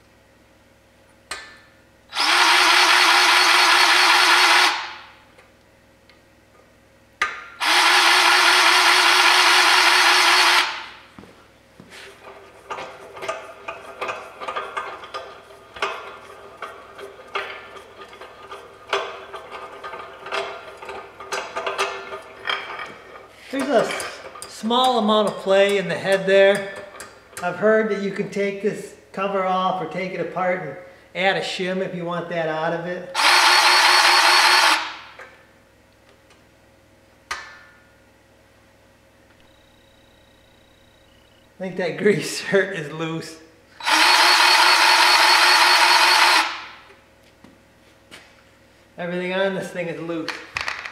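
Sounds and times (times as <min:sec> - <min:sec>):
grease gun motor whine: 0:02.1 - 0:04.9, 0:07.6 - 0:10.9, 0:33.2 - 0:35.0, 0:43.8 - 0:46.7.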